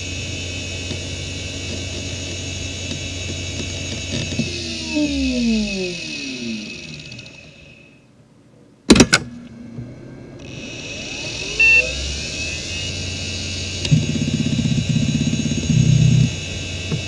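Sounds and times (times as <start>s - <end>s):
hard drive whine: 0.0s - 17.0s
short beep: 11.0s - 12.9s.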